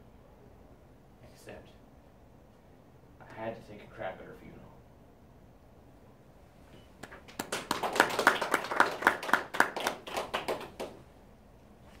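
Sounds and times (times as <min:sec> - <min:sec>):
hand clapping: 0:07.0 - 0:11.0.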